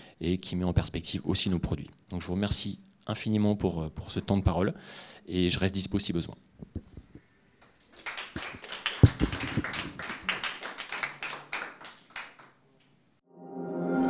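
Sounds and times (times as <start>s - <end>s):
audience applauding: 7.6s - 12.6s
music: 13.3s - 14.0s.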